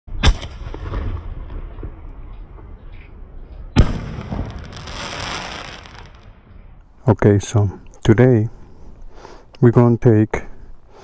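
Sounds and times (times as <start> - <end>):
fireworks bangs: 3.8 - 6.4
fireworks crackling: 3.8 - 6.4.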